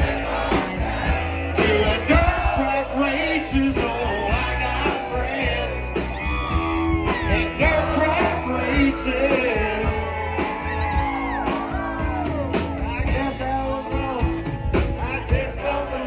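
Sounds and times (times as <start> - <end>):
men singing together: 0.0 - 6.0, 7.2 - 10.2, 14.9 - 16.0
live rock band playing: 0.0 - 16.0.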